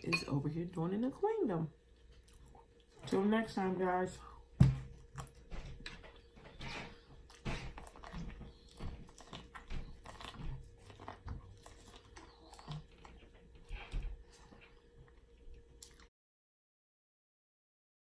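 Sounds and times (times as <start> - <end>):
faint steady hum: 0.0 - 16.1
person chewing and biting: 4.9 - 16.1.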